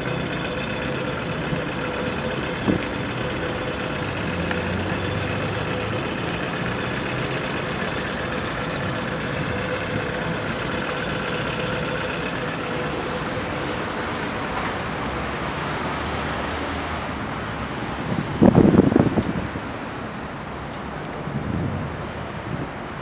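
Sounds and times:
steady whine: 0:00.0 - 0:16.0
vehicle running rumble: 0:00.0 - 0:23.0
wind buffeting microphone: 0:18.0 - 0:19.7, 0:21.2 - 0:23.0.

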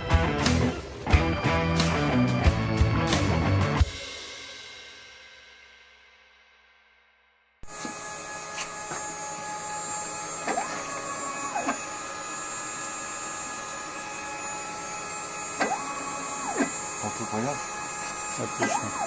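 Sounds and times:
axis motors moving gantry: 0:07.6 - 0:19.0
cnc router whine: 0:07.6 - 0:19.0.

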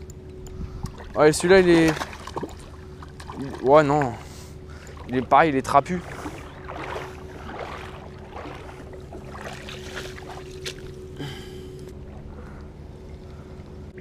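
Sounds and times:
faint steady hum: 0:00.0 - 0:14.0
water lapping at shoreline: 0:00.1 - 0:14.0
small water splashes: 0:00.9 - 0:11.0.

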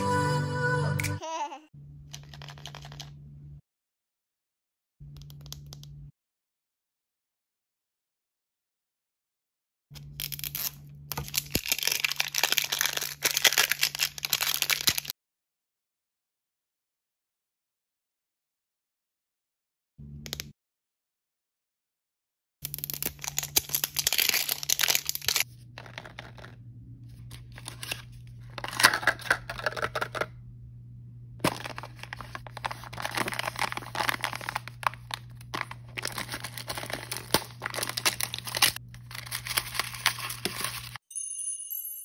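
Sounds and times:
wrappers crackling being torn: 0:10.0 - 0:15.1, 0:22.7 - 0:25.5, 0:31.4 - 0:41.0
steady low hum: 0:25.4 - 0:39.5.

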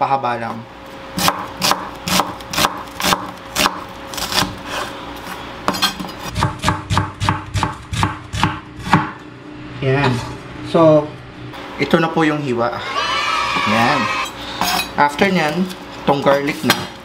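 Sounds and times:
knife chopping on wooden board: 0:01.2 - 0:04.6, 0:05.7 - 0:09.2.

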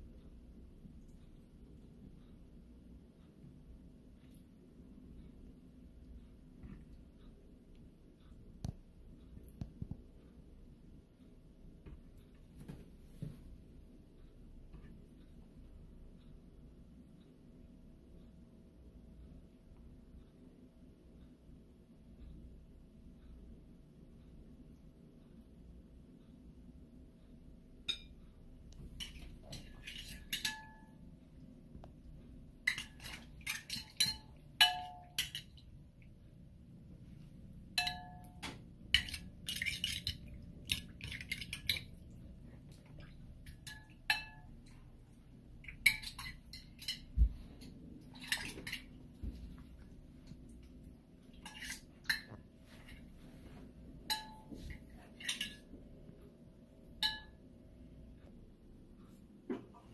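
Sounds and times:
dishes and utensils clinking: 0:27.8 - 0:28.2, 0:28.8 - 0:31.0, 0:32.6 - 0:35.7, 0:37.1 - 0:42.1, 0:43.0 - 0:44.9, 0:45.6 - 0:49.4, 0:51.3 - 0:55.7, 0:57.0 - 0:57.4.

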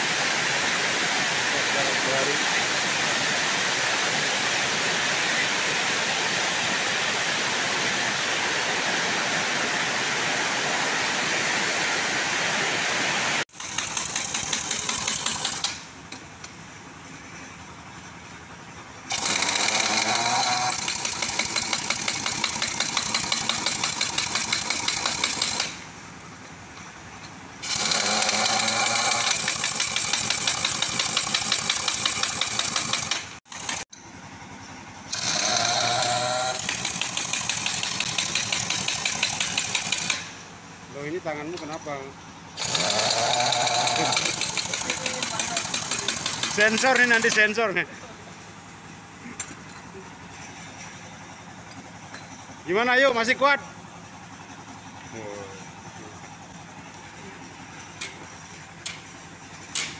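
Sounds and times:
heavy rain hissing: 0:00.0 - 0:13.5
pneumatic impact wrench rattling: 0:13.5 - 0:16.5, 0:19.1 - 0:26.0, 0:26.8 - 0:34.1, 0:35.1 - 0:40.5, 0:42.5 - 0:47.9, 0:57.0 - 0:59.9.

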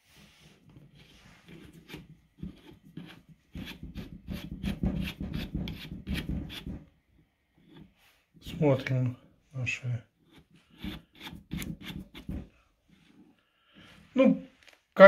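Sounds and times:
hands rubbing and scraping drill: 0:00.4 - 0:06.8, 0:10.3 - 0:13.3.

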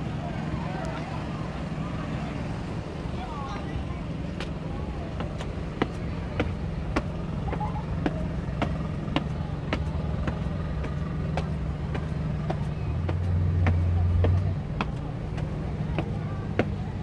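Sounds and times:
low engine hum: 0:00.0 - 0:17.0.

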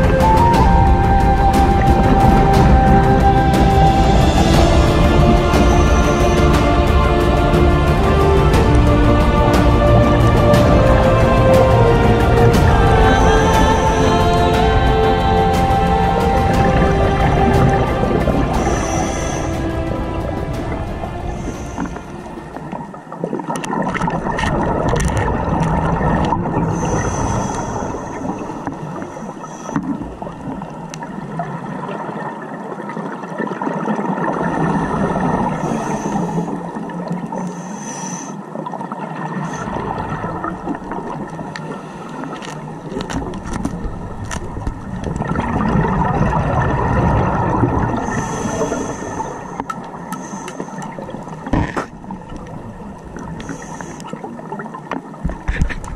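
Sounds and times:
underwater air bubbling: 0:00.0 - 0:55.9
faint clicks: 0:41.3 - 0:45.3.

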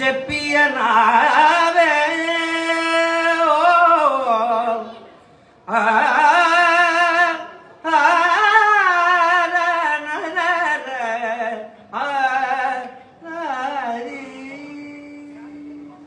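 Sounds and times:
man singing unaccompanied: 0:00.0 - 0:05.0, 0:05.6 - 0:16.0.

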